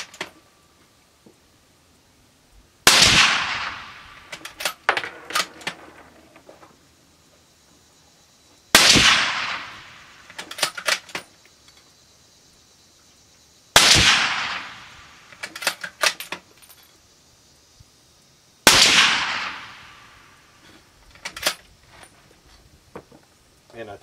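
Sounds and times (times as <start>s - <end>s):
suppressed rifle shots: 2.8s - 6.0s, 8.7s - 11.0s, 13.8s - 16.2s, 18.6s - 20.4s.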